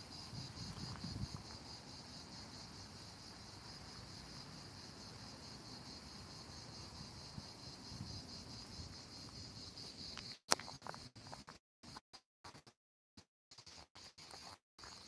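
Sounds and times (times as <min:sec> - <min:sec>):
insects chirring: 0:00.0 - 0:11.4.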